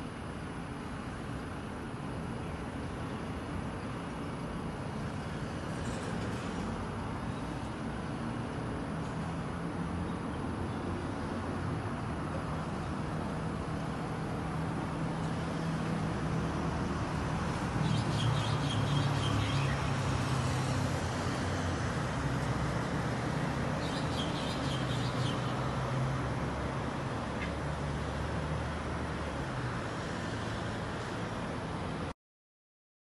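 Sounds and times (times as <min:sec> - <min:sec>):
road traffic rumble: 0:00.0 - 0:32.1
small bird singing: 0:17.8 - 0:20.1, 0:23.8 - 0:25.7.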